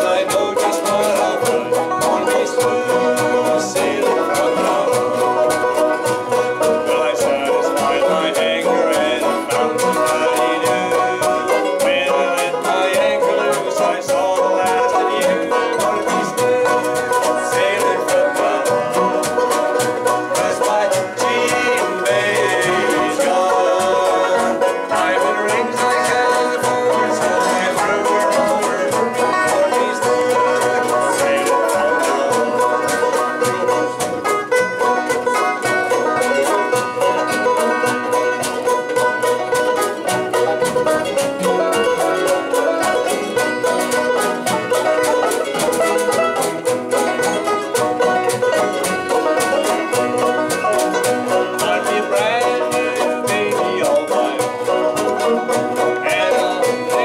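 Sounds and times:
banjos picking: 0.0 - 57.0
guitar: 0.0 - 57.0
upright bass: 0.0 - 57.0.

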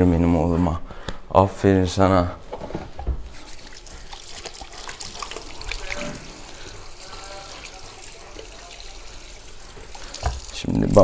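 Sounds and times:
tap water running into sink: 3.2 - 11.0.

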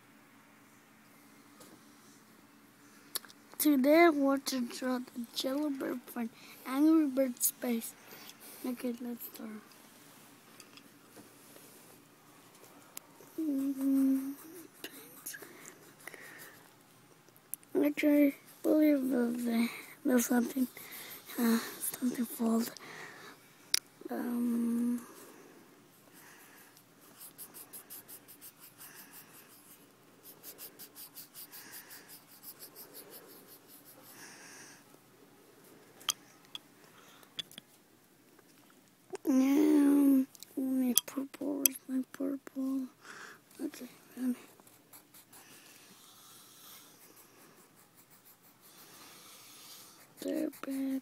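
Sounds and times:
pencil scratching on paper: 13.4 - 16.7, 17.8 - 22.7, 26.1 - 34.3, 44.2 - 51.0.

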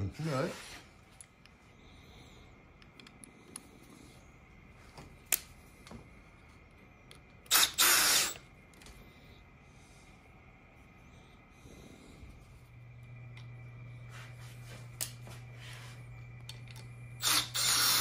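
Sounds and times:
cordless drill running: 7.5 - 8.4, 17.2 - 18.0.

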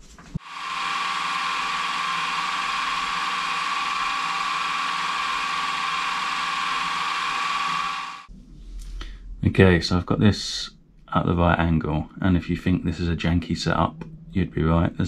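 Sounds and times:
milling machine whining: 0.4 - 8.3.

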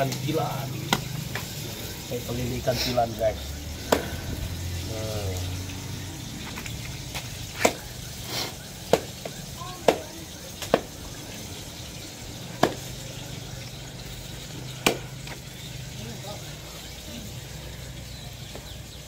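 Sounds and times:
knife chopping on wooden board: 12.6 - 12.8.

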